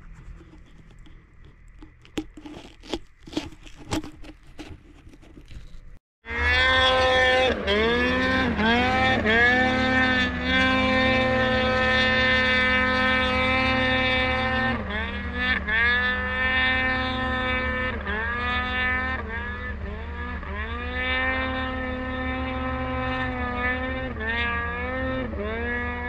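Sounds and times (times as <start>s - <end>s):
snowmobile engine revving: 6.3s - 26.0s.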